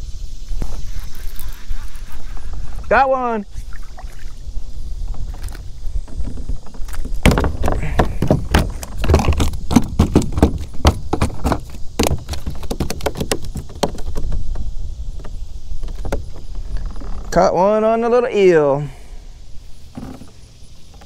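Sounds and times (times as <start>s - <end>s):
fish flopping on kayak deck: 0.7s - 17.3s.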